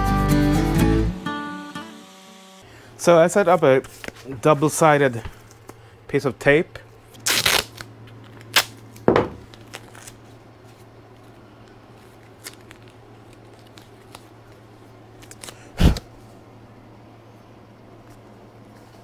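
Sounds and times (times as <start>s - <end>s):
steady low hum: 2.6s - 19.0s
tape snipping and crinkling: 7.1s - 14.6s, 15.2s - 16.1s.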